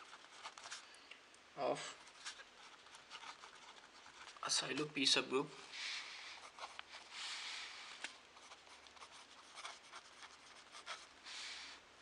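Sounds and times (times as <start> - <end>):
pen scratching on paper: 2.6 - 4.5, 8.4 - 11.2.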